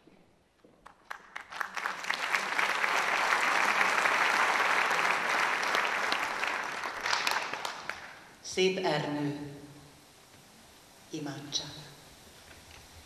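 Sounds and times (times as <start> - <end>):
audience applauding: 0.8 - 8.3.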